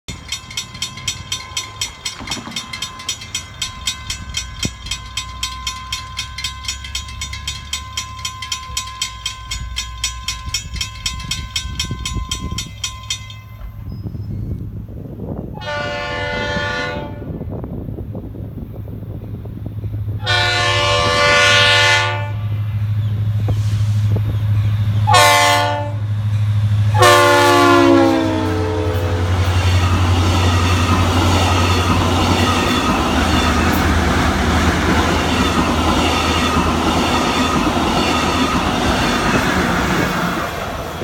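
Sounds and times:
crossing warning bell ringing: 0.1 - 14.6, 24.4 - 41.0
diesel locomotive rumble: 0.1 - 41.0
train horn blast: 15.5 - 17.5, 20.2 - 22.6, 25.0 - 26.1, 26.9 - 29.8.

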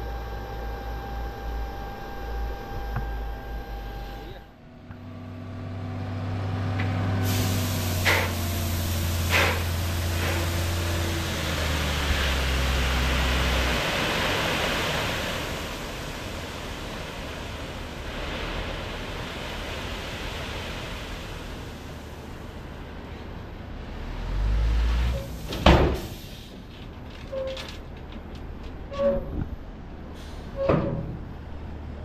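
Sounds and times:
air brake hisses: 7.2 - 10.6.

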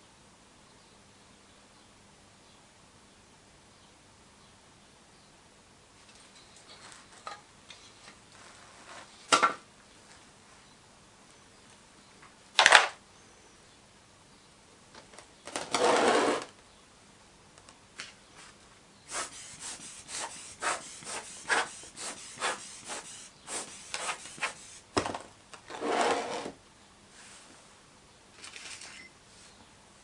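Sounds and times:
metal flask scraping on board: 15.7 - 16.5.

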